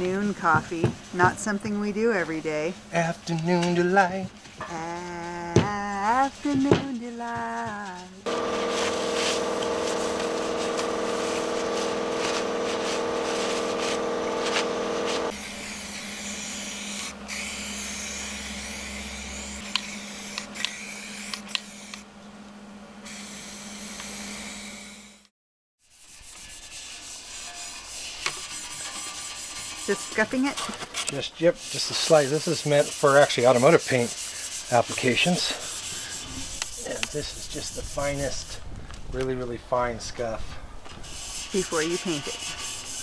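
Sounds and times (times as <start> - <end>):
abrasive pad rubbing metal: 4.7 - 22.0, 25.8 - 30.7, 31.4 - 38.6, 40.9 - 43.0
steady hum: 7.8 - 25.3
spray can hissing: 8.2 - 22.0.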